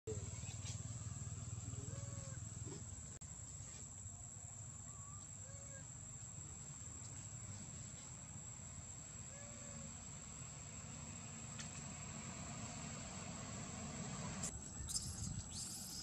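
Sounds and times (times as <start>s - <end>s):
baby monkey squeaking calls: 14.8s - 16.0s.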